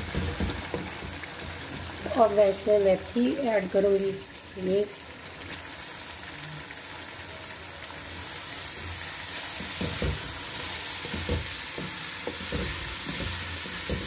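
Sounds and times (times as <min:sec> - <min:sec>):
food sizzling in oil: 0:00.0 - 0:14.0
spatula knocking against pot: 0:11.0 - 0:14.0.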